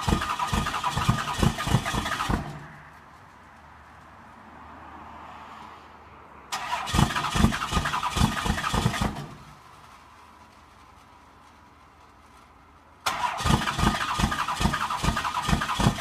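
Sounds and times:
rough engine thumps: 0:00.0 - 0:02.8, 0:06.9 - 0:09.6, 0:13.3 - 0:16.0
diesel engine running: 0:00.0 - 0:03.4, 0:06.5 - 0:12.4, 0:13.0 - 0:16.0.

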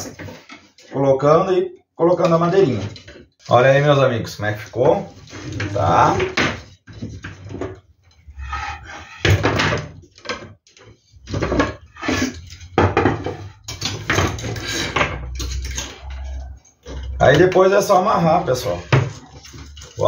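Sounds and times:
wooden slats knocking and clattering: 0:04.7 - 0:08.2, 0:09.2 - 0:20.0.

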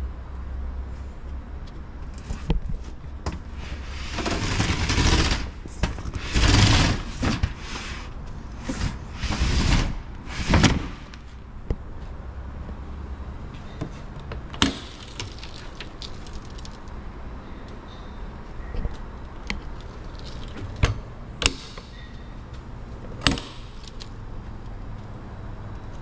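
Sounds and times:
roll-up door slats rattling: 0:03.9 - 0:08.0.

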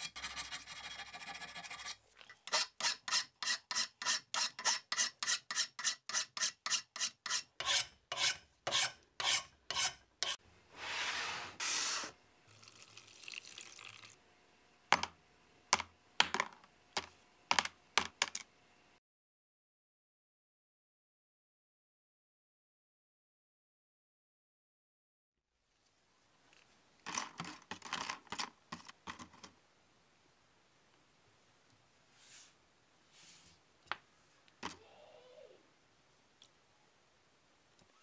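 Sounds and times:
hand file rasping on cast iron: 0:00.0 - 0:10.4.

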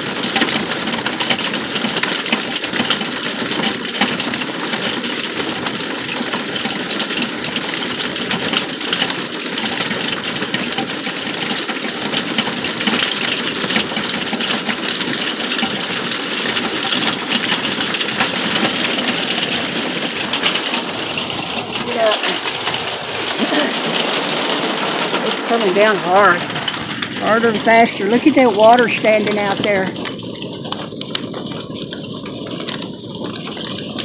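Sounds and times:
heavy rain and hail on roof: 0:00.0 - 0:34.0.

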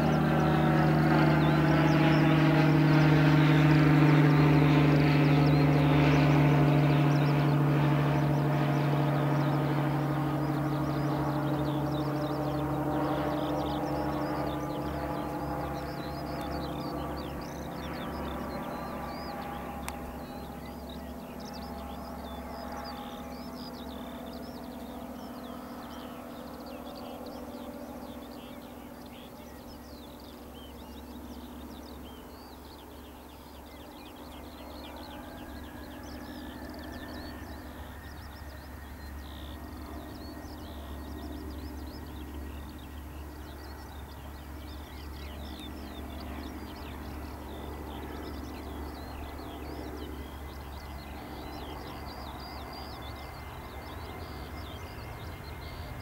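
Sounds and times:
birds chirping: 0:00.0 - 0:56.0
jet engines running: 0:00.0 - 0:56.0
jet engine whine rising: 0:33.1 - 0:56.0.

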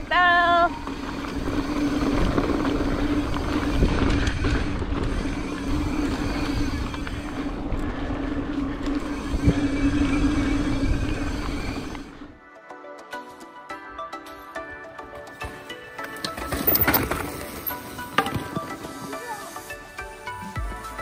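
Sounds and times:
wind buffeting microphone: 0:00.9 - 0:12.3.

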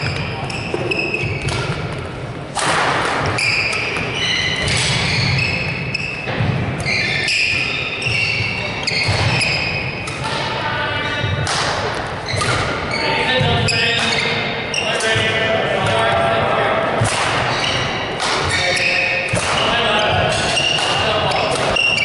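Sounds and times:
shoes squeaking on wooden floor: 0:00.0 - 0:02.0, 0:03.2 - 0:10.0, 0:12.2 - 0:15.3, 0:17.5 - 0:22.0
rackets striking shuttlecock: 0:00.0 - 0:10.6, 0:11.4 - 0:12.9, 0:17.0 - 0:22.0.

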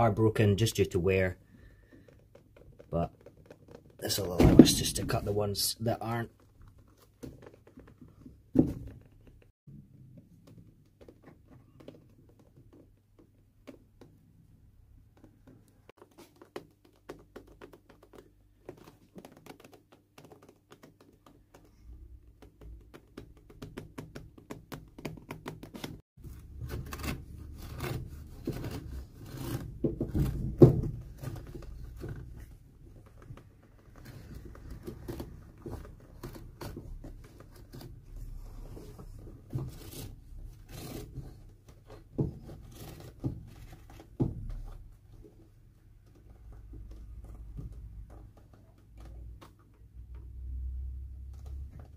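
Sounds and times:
blade scraping along leather sole: 0:26.6 - 0:29.8, 0:39.6 - 0:41.4.

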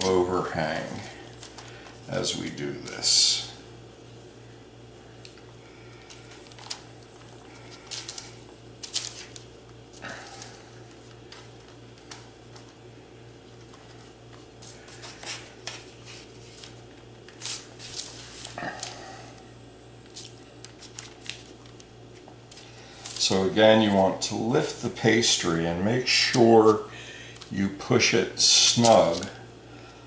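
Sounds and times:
steady low hum: 0:00.0 - 0:30.0
hands tapping and rustling pastry: 0:05.2 - 0:19.0, 0:20.0 - 0:23.9.

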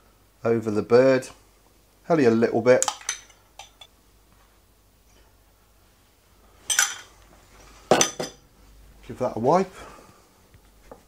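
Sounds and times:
metal spoon clinking on dish: 0:02.9 - 0:03.9.

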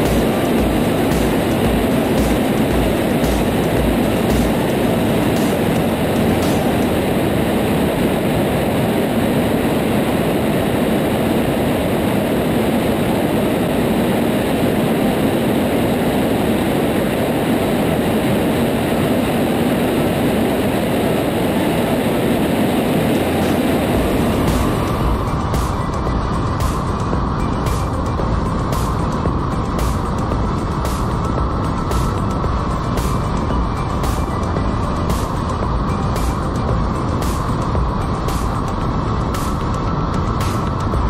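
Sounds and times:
light aircraft engine drone: 0:00.0 - 0:41.0
wind rushing: 0:00.0 - 0:41.0.

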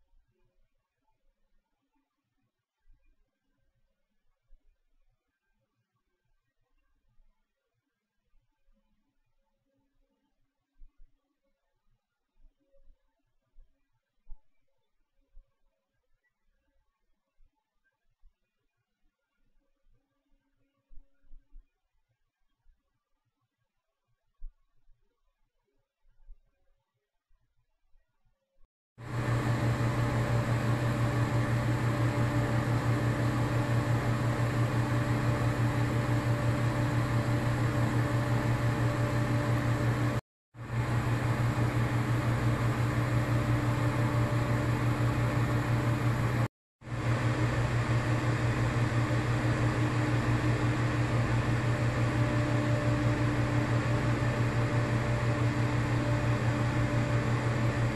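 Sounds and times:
fan-like mechanical hum: 0:29.0 - 0:57.9.

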